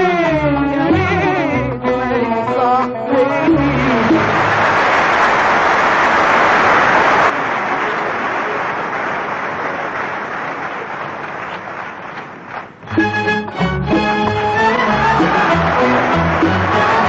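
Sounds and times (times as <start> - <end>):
audience applauding: 3.4 - 17.0.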